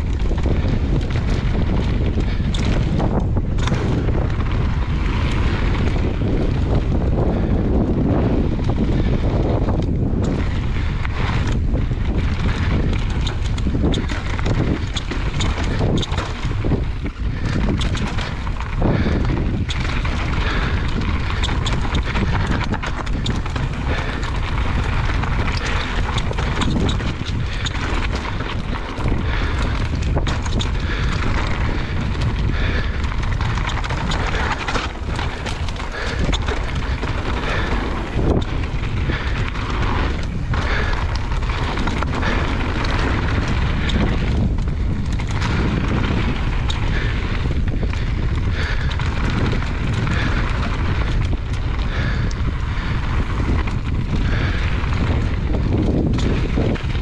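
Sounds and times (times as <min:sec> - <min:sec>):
bike rattling and knocking: 0:00.0 - 0:57.0
tyres rolling on trail: 0:00.0 - 0:57.0
wind buffeting microphone: 0:00.0 - 0:57.0.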